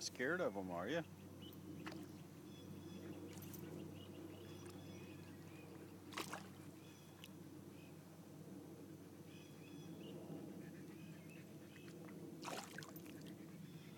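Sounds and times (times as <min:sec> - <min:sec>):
water sloshing at shore: 0:06.0 - 0:07.4, 0:12.4 - 0:13.3
sharp splash: 0:06.1 - 0:06.6, 0:12.4 - 0:13.1.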